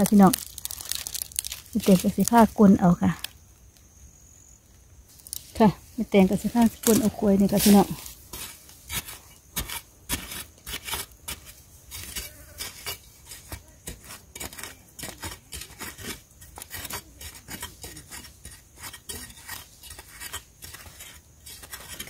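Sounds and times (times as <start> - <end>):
digging blade chopping soil: 6.2 - 22.0.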